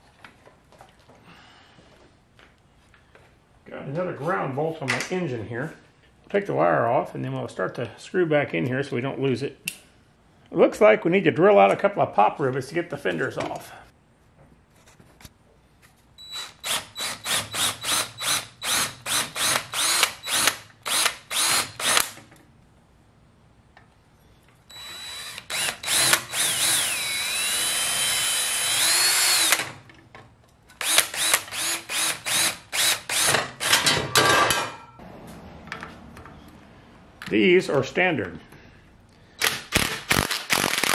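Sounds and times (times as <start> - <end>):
cordless drill drilling metal: 16.2 - 22.2, 24.7 - 29.8, 30.8 - 33.8.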